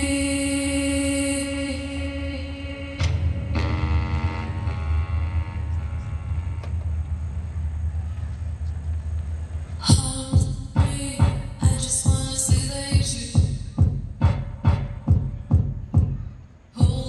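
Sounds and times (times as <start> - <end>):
deep steady rumble: 1.5 - 16.0
electronic beat with heavy bass: 9.8 - 17.0.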